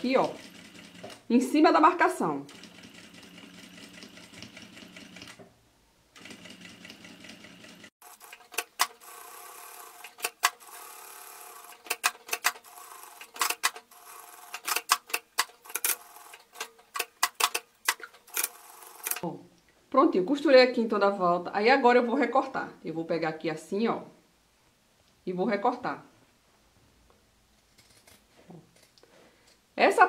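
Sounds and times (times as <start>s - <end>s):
electric sewing machine stitching: 6.2s - 14.9s, 15.6s - 16.6s, 18.3s - 19.2s
sharp irregular clicks: 14.5s - 19.2s.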